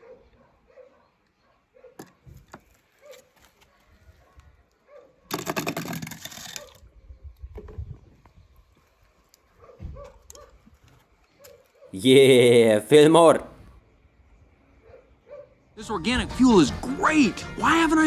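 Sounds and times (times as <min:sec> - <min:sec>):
toy car rattling over wooden blocks: 0:05.3 - 0:06.8.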